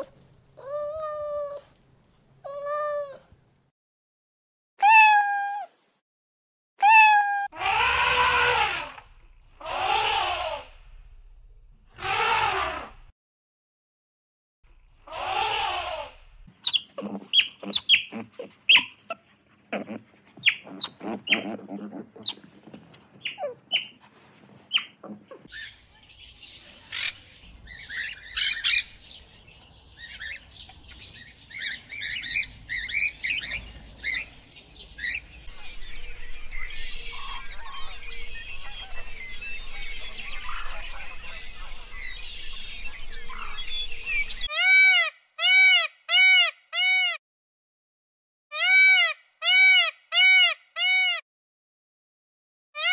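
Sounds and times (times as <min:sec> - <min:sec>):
macaws squawking: 0:07.6 - 0:10.8, 0:12.0 - 0:13.0, 0:15.0 - 0:24.0, 0:26.9 - 0:29.1, 0:30.0 - 0:34.4, 0:48.6 - 0:51.2
bird chirps and calls: 0:16.6 - 0:19.0, 0:20.4 - 0:22.5, 0:23.2 - 0:24.0, 0:24.7 - 0:47.1.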